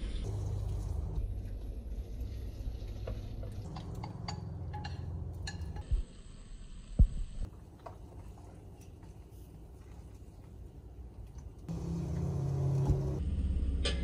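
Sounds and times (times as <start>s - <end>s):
utensils and dishes clinking: 3.6s - 5.8s
low hum: 11.7s - 14.0s.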